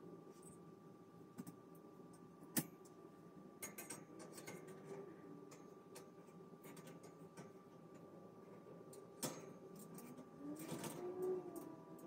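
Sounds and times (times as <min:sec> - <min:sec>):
faint steady hum: 0:00.0 - 0:12.0
metal wire shelving clicks and taps: 0:03.6 - 0:07.6, 0:08.9 - 0:12.0.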